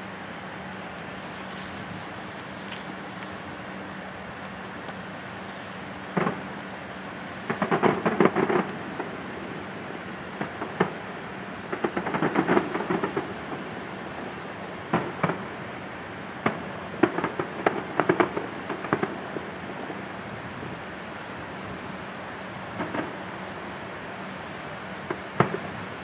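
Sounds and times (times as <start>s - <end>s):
background hiss: 0.0s - 26.0s
distant fireworks bangs and crackling: 0.0s - 26.0s.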